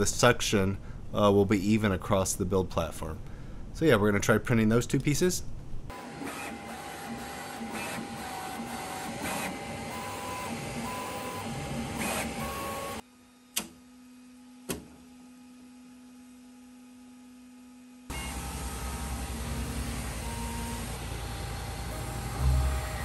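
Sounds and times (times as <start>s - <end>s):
printer motor tones: 5.9s - 13.0s, 18.1s - 23.0s
three d printer whirring: 5.9s - 13.0s, 18.1s - 23.0s.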